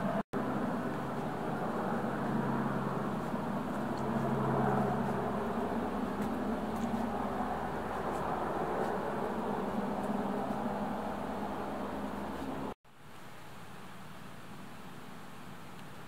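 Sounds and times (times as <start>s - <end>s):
steady mechanical drone: 0.0s - 12.8s.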